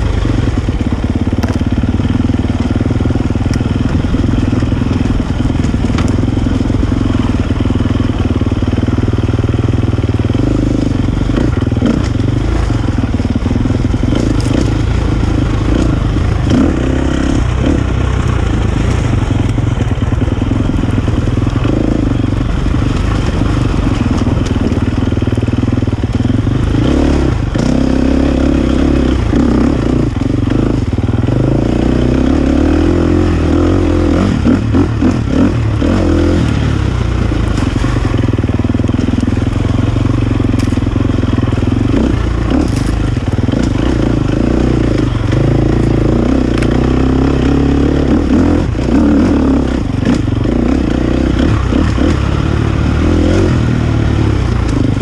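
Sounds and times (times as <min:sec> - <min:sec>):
dirt bike engine revving: 0:00.0 - 0:55.0
stones clattering under tyres: 0:42.5 - 0:44.0.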